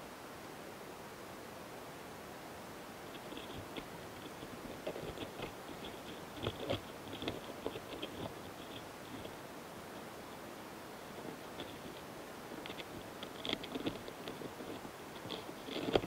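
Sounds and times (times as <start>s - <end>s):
beetles scratchy clicks: 3.0s - 9.4s, 11.0s - 16.0s.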